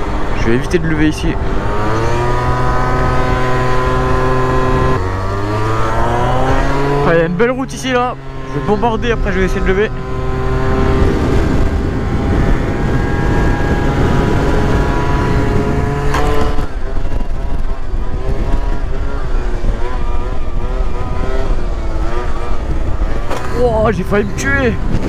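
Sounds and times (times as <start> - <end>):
scooter engine at full throttle: 0.0 - 25.0
wind on microphone: 8.3 - 25.0.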